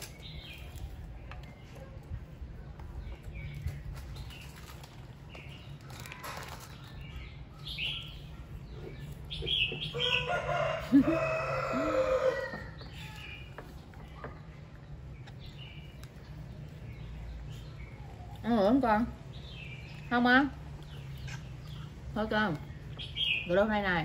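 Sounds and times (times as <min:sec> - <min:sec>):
rooster crowing: 0:10.0 - 0:12.9.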